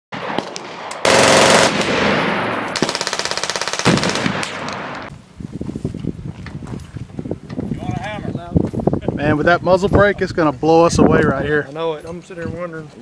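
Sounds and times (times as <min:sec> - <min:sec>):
automatic gunfire: 0:00.2 - 0:05.1.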